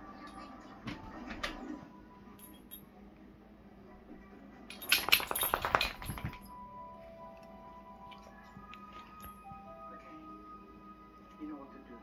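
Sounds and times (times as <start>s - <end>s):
faint background music: 0.0s - 12.0s
dog collar tags jingling: 4.7s - 6.5s.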